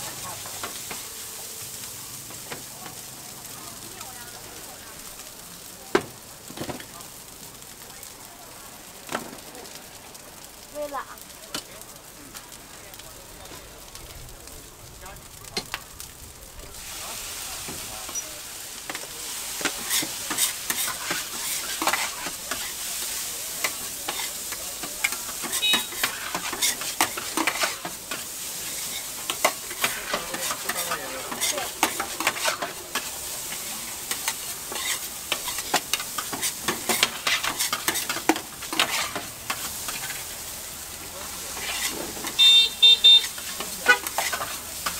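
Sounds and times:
rice sizzling on a griddle: 0:00.0 - 0:44.9
metal spatulas scraping a griddle: 0:19.3 - 0:40.3, 0:41.4 - 0:42.4, 0:43.2 - 0:44.9.

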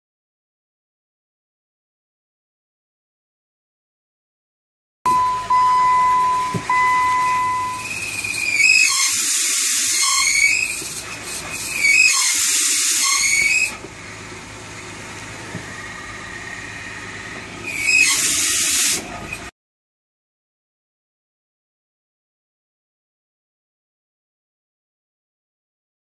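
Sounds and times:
bearing squealing with hiss: 0:06.2 - 0:13.8, 0:15.6 - 0:19.5.

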